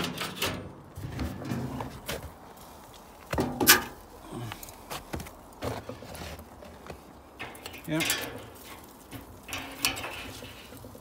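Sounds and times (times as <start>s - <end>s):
metal lid clanking: 0.0s - 1.8s, 7.4s - 10.8s.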